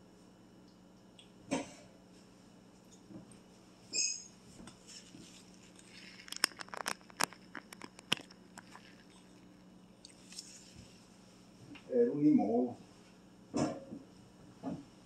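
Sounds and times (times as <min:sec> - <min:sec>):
short squeak: 0:03.9 - 0:04.4.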